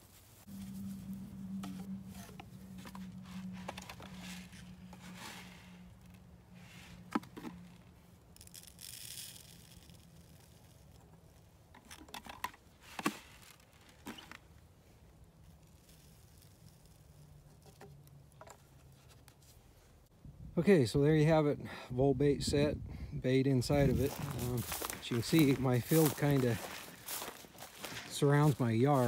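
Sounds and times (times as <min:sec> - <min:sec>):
low steady hum: 0:00.0 - 0:12.8
plastic scraping and rustling: 0:00.0 - 0:14.6, 0:23.9 - 0:29.0
bait pouring into pipe: 0:08.3 - 0:10.9.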